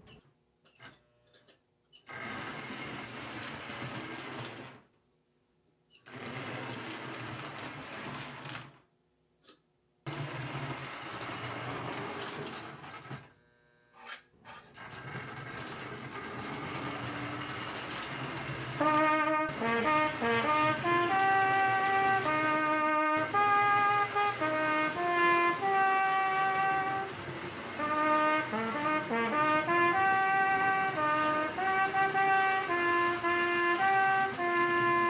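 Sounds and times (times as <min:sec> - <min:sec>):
model train motor whirring: 0:14.0 - 0:35.0.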